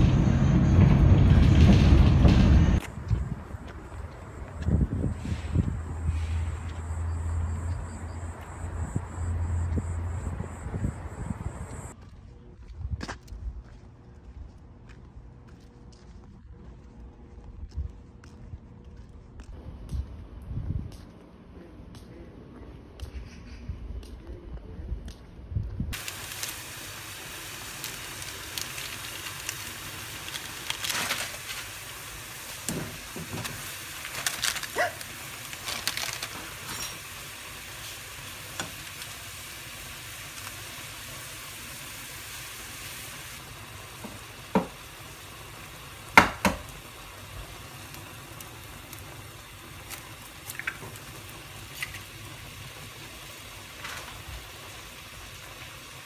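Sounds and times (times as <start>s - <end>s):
noodles bubbling in broth: 25.9s - 56.0s.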